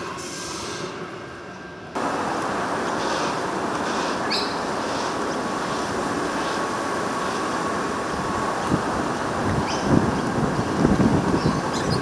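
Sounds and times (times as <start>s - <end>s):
electric train: 0.0s - 12.0s
wind noise on microphone: 7.9s - 12.0s.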